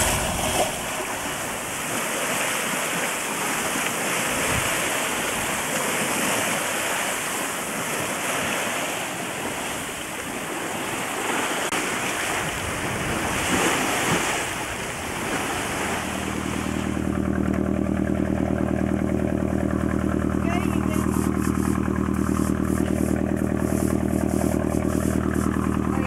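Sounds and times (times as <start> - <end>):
water rushing past hull: 0.0 - 26.0
diesel engine running: 14.6 - 26.0.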